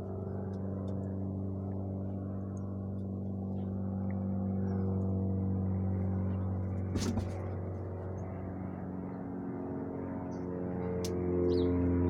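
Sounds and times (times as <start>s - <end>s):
brief knock: 6.9s - 7.5s.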